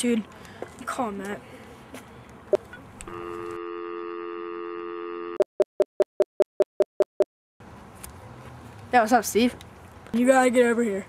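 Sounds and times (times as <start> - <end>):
telephone dial tone: 3.0 - 5.4.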